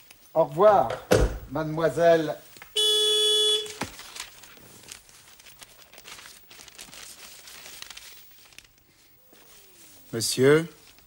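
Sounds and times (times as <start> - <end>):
newspaper rustling: 3.6 - 11.0.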